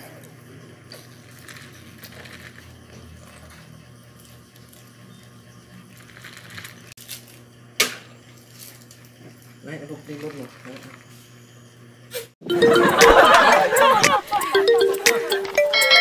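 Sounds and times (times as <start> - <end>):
plastic cup and paper box rustling: 0.9 - 3.4, 5.9 - 7.3.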